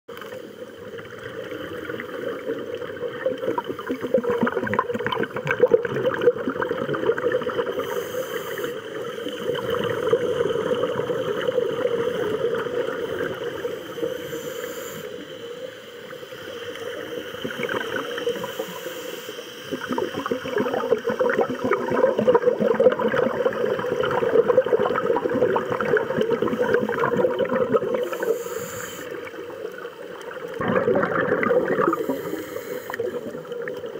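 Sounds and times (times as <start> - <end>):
bubbling exhalations: 1.2 - 8.0, 19.7 - 28.3, 30.6 - 33.8
divers breathing through regulators: 7.7 - 9.8, 13.6 - 15.7, 18.2 - 19.7, 28.0 - 29.4, 31.8 - 33.5.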